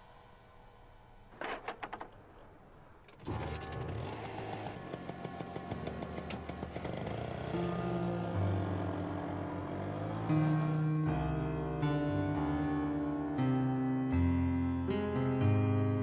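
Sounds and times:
scooter engine running: 3.2 - 10.9.

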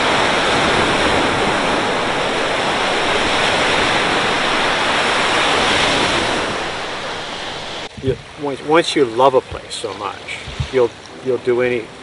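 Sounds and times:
water rushing: 0.0 - 12.0.

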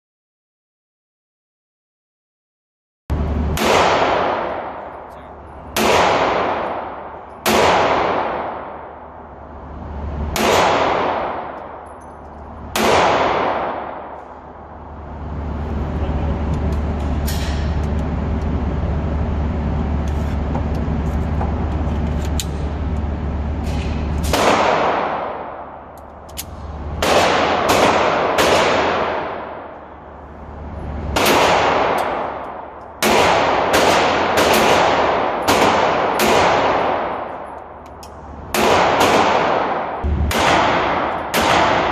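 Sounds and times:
steady hum: 3.1 - 41.9
pistol shots echoing: 3.5 - 9.2, 10.3 - 12.0, 12.6 - 14.4, 24.2 - 30.0, 31.1 - 37.8, 38.5 - 41.9.

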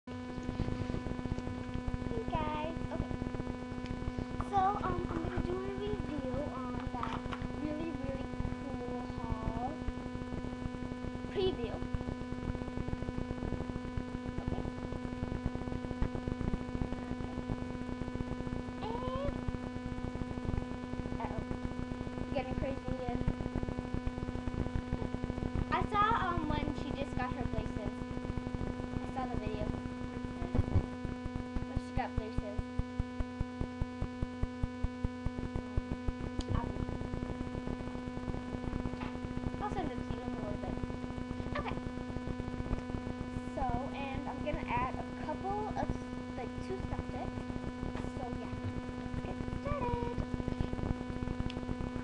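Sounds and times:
crackling static: 0.1 - 52.0
electrical hum: 0.1 - 52.0
fast interference clicking: 6.7 - 7.6.

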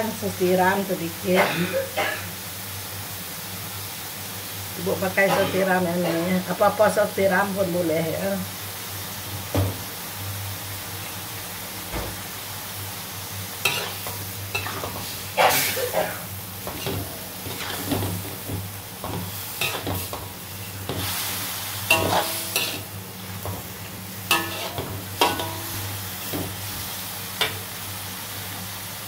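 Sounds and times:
low sizzle of frying: 0.0 - 29.0
metal spatula scraping a wok: 13.6 - 26.6.

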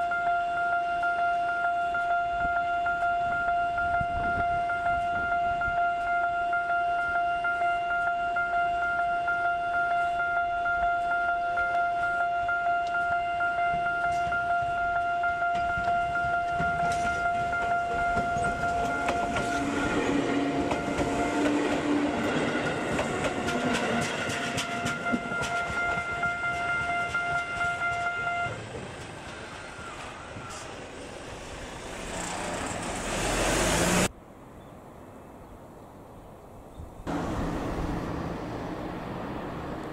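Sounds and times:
level crossing bell ringing: 0.0 - 28.6
train running on rails: 0.0 - 34.1, 37.1 - 39.9
wheels clicking over rail joints: 11.0 - 34.1.

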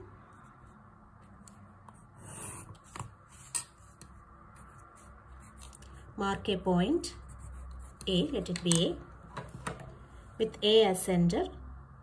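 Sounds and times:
pencil scratching on paper: 1.9 - 4.0, 7.0 - 8.5.

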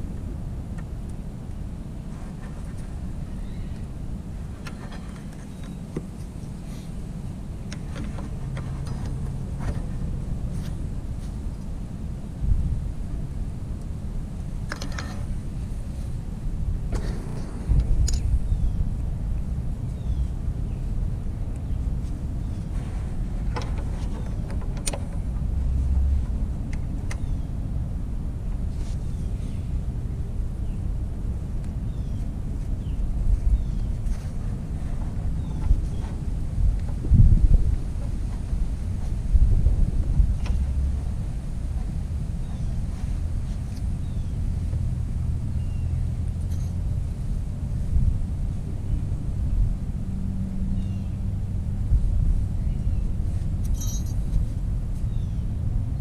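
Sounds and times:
wind rumble on microphone: 0.0 - 56.0
metallic clicks and scrapes: 53.6 - 54.5.

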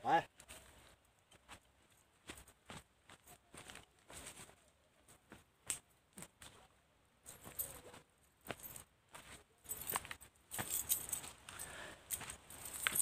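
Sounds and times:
footsteps on sandy dirt: 0.3 - 6.7, 7.3 - 13.0
light high clinks: 9.7 - 13.0.

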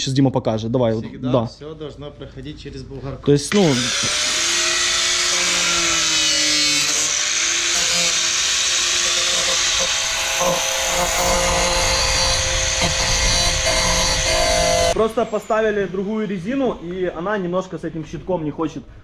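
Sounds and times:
angle grinder cutting: 3.5 - 17.6.

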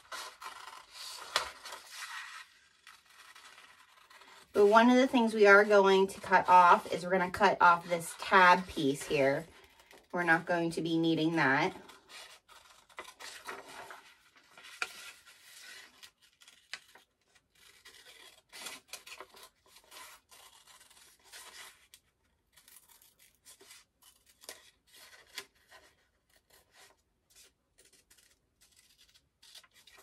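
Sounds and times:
paper sheet rustling: 0.0 - 21.9
scissors snipping paper: 11.1 - 30.0.

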